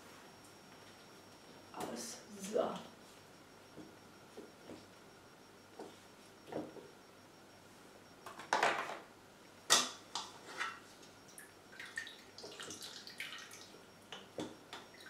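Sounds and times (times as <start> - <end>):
water dripping: 11.3 - 14.2.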